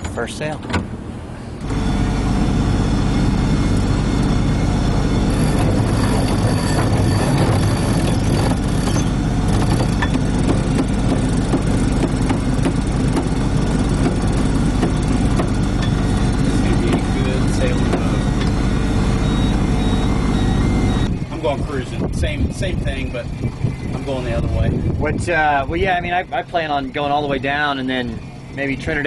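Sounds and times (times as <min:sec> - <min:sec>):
mechanical drone and rushing: 0:00.0 - 0:29.0.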